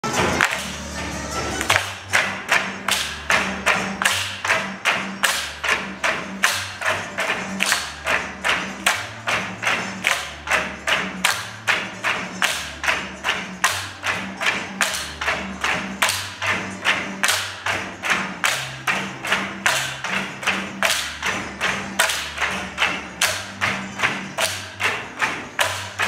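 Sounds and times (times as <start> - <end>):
bamboo poles knocking: 0.0 - 0.9, 1.6 - 26.0
music with bass line: 0.0 - 26.0.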